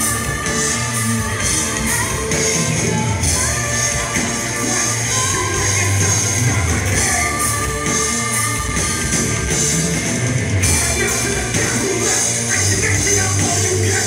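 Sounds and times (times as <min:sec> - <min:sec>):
live rock band: 0:00.0 - 0:14.0
man singing: 0:03.4 - 0:09.0, 0:10.6 - 0:14.0.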